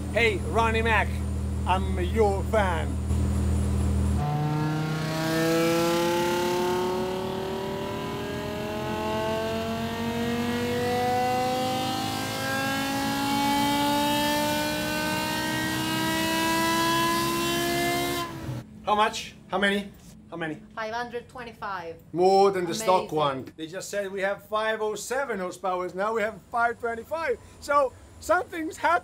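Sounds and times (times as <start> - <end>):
car engine revving at full throttle: 0.0 - 18.6.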